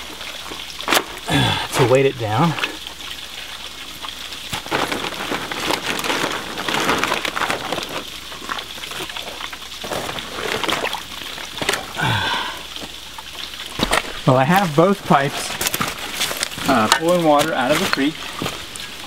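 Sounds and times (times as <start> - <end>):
plastic sheeting crinkling: 4.4 - 19.0
concrete blocks scraping and knocking: 13.8 - 18.7.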